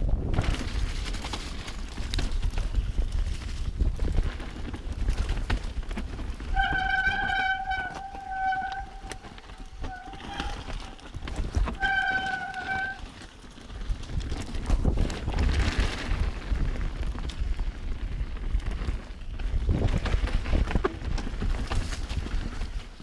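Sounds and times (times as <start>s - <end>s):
bike rattling and clicking: 0.0s - 23.0s
bike tyres rumbling over dirt: 0.0s - 23.0s
disc brake squealing: 6.6s - 13.0s.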